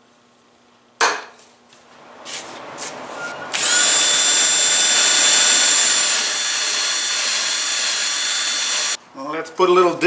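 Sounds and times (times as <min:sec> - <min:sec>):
cordless drill whining: 0:03.5 - 0:09.0.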